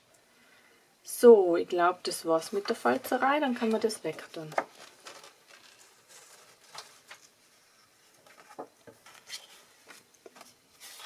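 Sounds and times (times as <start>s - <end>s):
paper rustling: 3.6s - 11.0s.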